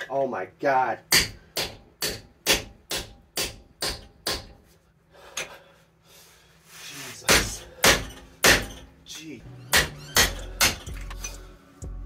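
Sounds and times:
hammer striking steel chisel: 1.1s - 4.6s, 7.3s - 8.9s, 9.7s - 11.2s.

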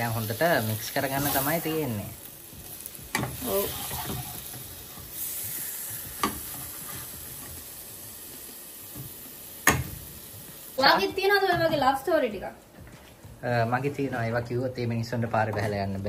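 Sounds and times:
curry sizzling in pot: 0.0s - 12.4s.

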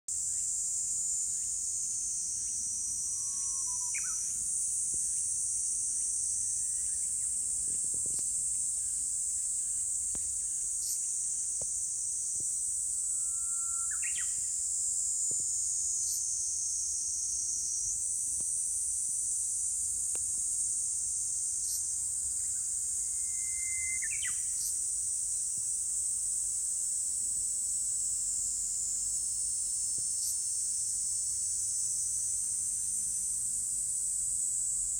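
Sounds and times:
insects shrilling: 13.0s - 14.4s.

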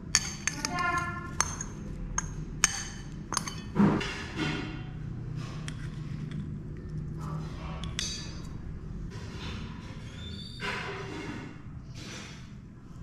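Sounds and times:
glass bowls clinking: 0.0s - 3.8s, 7.8s - 8.6s.

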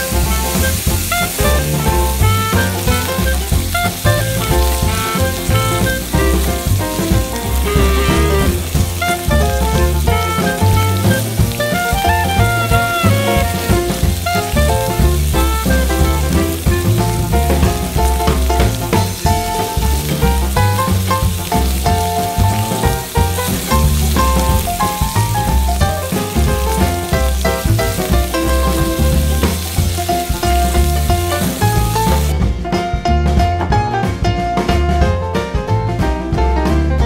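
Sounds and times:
steak sizzling in a pan: 0.0s - 32.4s
background music with bass: 0.0s - 37.0s.

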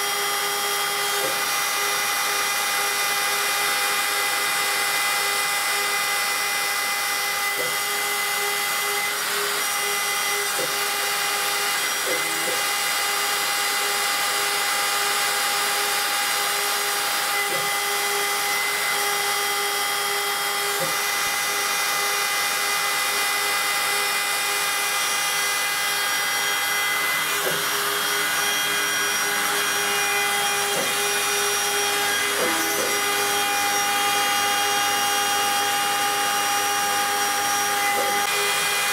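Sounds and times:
router spindle whine: 0.0s - 38.9s.

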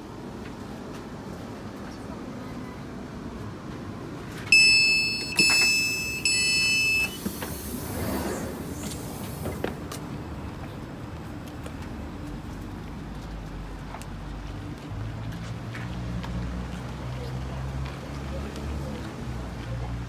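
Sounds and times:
low rumble of stationary train: 0.0s - 15.8s
sliding door opening: 4.4s - 9.8s
steady beep: 4.5s - 7.3s
electronic door tones: 4.5s - 7.4s.

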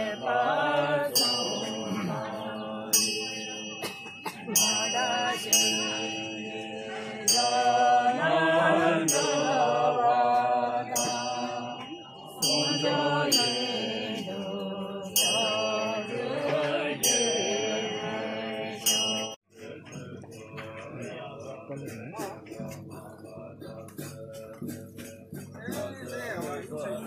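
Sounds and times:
metal bell ringing: 0.0s - 8.3s, 9.0s - 19.4s
voices chanting: 0.0s - 27.0s.

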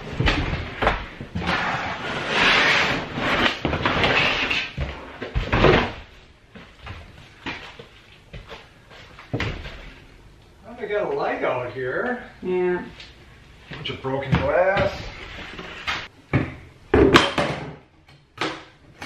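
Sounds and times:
floor covering rustling and scraping: 0.0s - 10.0s, 13.6s - 16.1s.

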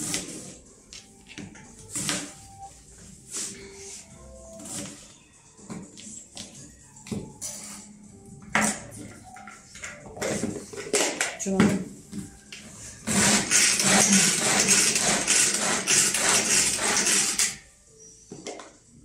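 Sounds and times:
food chopper blades rattling: 13.1s - 17.6s.

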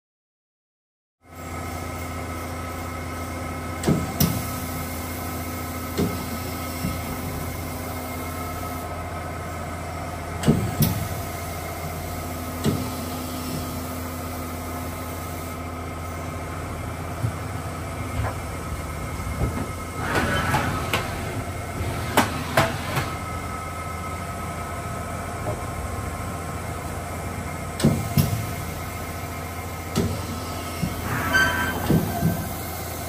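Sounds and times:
machining center humming: 15.6s - 33.0s.

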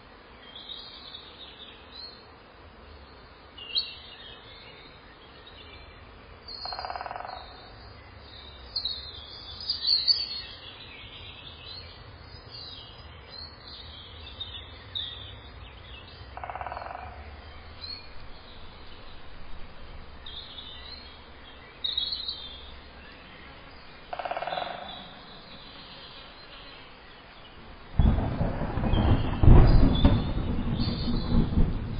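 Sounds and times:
birds chirping: 3.0s - 31.9s
steady low hum: 7.3s - 31.9s.

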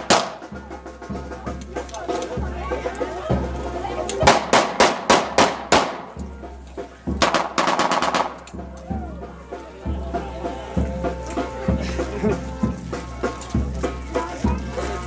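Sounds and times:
loud sharp bangs: 0.0s - 0.5s, 4.2s - 6.2s, 7.2s - 8.4s
band music: 0.0s - 15.0s.

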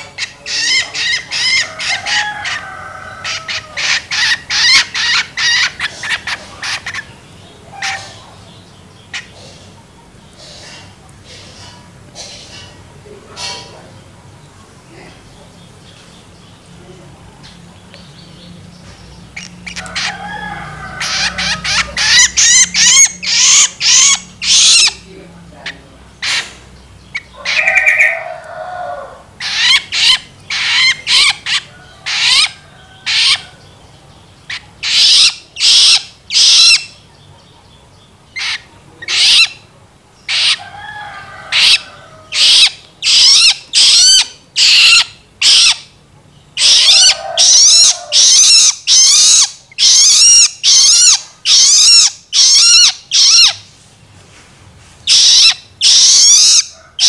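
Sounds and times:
bird begging calls: 0.0s - 9.5s, 19.2s - 33.8s, 34.4s - 37.0s, 38.3s - 46.0s, 46.6s - 53.7s, 55.0s - 57.0s.

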